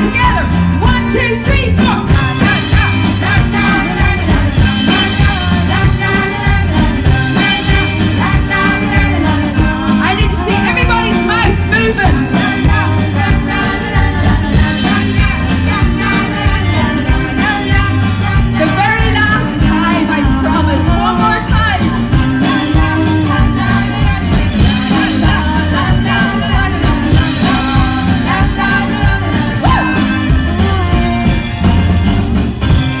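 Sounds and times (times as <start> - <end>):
acoustic guitar: 0.0 - 33.0
drum kit beat: 0.0 - 33.0
electric guitar: 0.0 - 33.0
person singing: 1.7 - 31.9.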